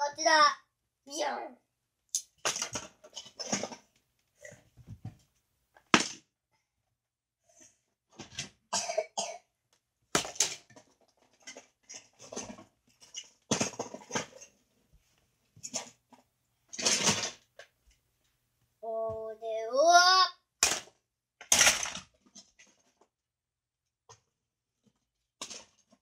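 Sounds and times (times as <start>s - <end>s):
toy cars clattering in plastic bin: 2.4s - 3.9s, 10.2s - 14.6s, 16.7s - 17.5s, 20.6s - 23.1s, 25.4s - 26.0s.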